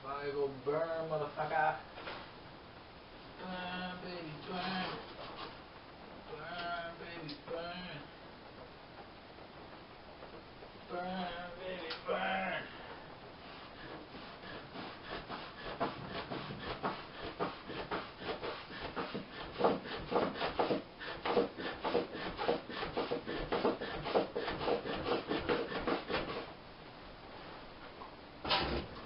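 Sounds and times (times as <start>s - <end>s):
wood scraping on wood: 4.4s - 5.6s, 13.4s - 26.5s.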